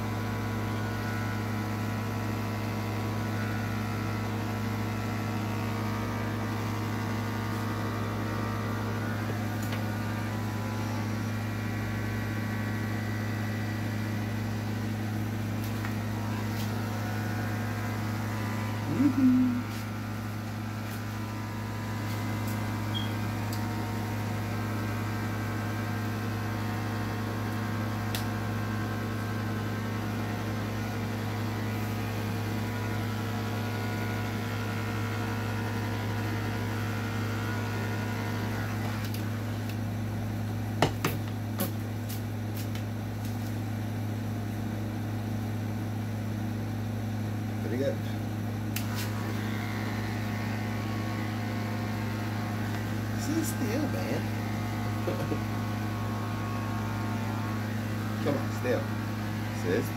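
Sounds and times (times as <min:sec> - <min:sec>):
electric pet clippers buzzing: 0:00.0 - 0:43.6, 0:47.7 - 0:59.9.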